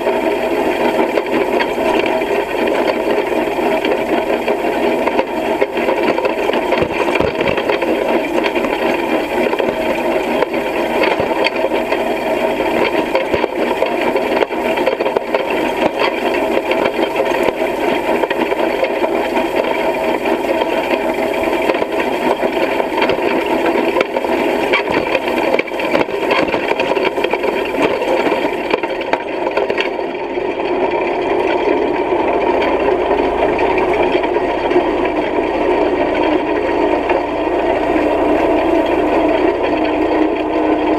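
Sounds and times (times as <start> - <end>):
hay rake tines rattling: 0.0 - 29.0.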